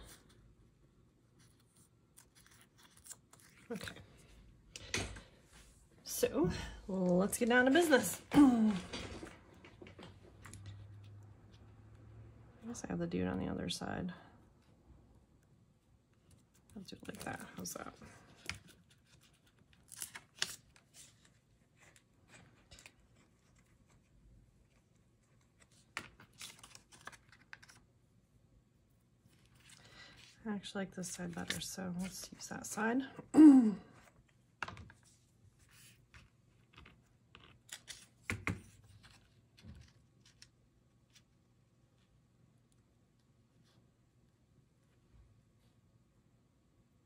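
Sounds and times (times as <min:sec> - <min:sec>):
paper rustling: 0:01.4 - 0:04.4, 0:16.2 - 0:27.9.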